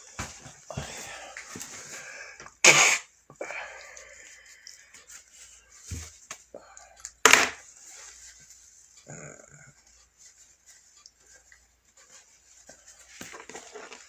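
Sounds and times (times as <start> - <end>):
man sniffing: 0.7 - 4.2
man blowing nose: 2.6 - 3.2.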